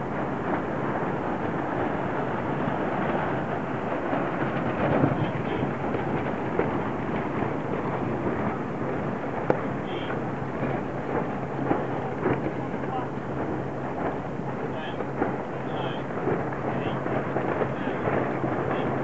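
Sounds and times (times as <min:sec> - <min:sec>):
water rushing: 0:00.0 - 0:19.0.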